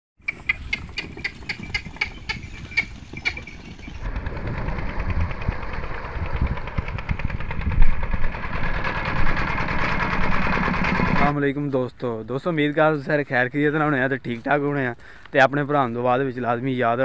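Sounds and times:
single-cylinder diesel engine knocking: 4.0s - 11.3s.

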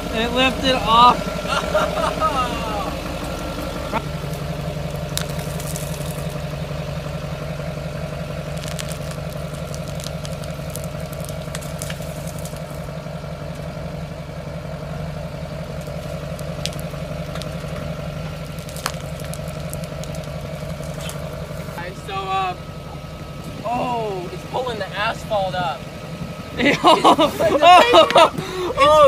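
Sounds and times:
pickup truck engine idling: 0.0s - 29.0s
glue crackling as it tears: 3.4s - 6.4s, 8.4s - 12.9s, 15.8s - 21.8s.

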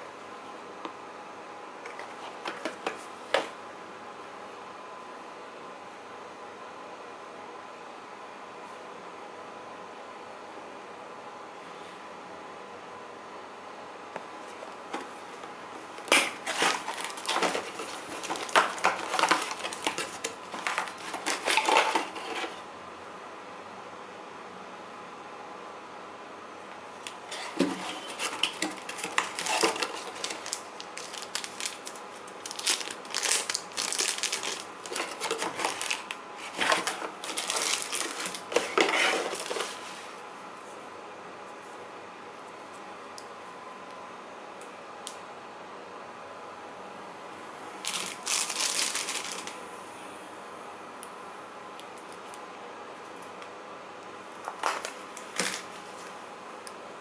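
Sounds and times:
cardboard and paper crinkling: 1.9s - 3.5s, 16.0s - 22.6s, 27.3s - 40.1s, 47.8s - 49.6s, 54.5s - 56.1s.

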